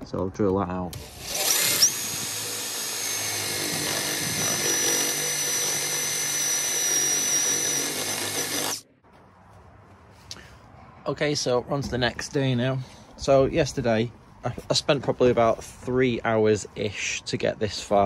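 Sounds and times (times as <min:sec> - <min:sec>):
power drill whining in steel: 0:00.9 - 0:08.8.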